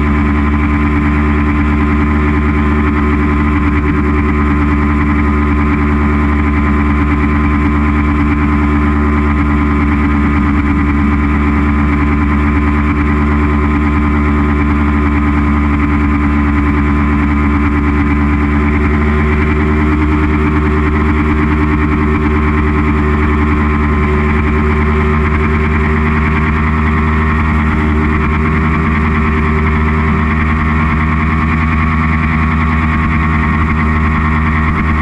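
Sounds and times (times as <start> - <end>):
motorcycle engine cruising: 0.0 - 35.0
steady rush of noise: 8.1 - 35.0.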